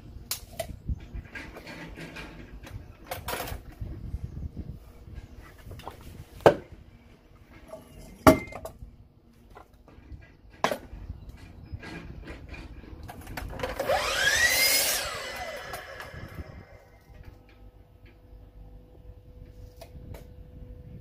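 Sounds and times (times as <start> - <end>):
miter saw motor whine: 13.6 - 17.2.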